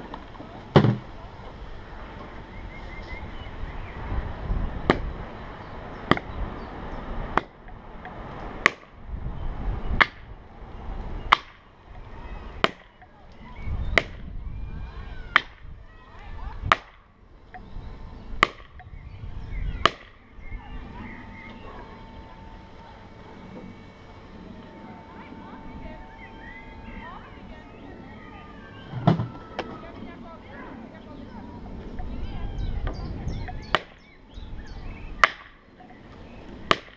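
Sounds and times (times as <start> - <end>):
axe striking wood: 11.3 - 11.6, 19.8 - 20.2, 35.2 - 35.6, 36.7 - 36.9.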